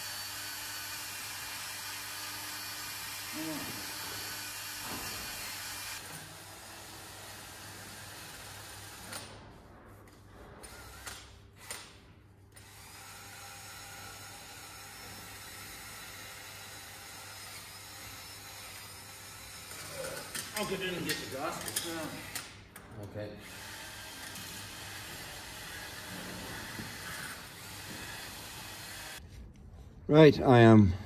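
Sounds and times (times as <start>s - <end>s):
power drill buffing metal: 0.0s - 9.1s, 12.6s - 22.4s, 23.4s - 29.2s.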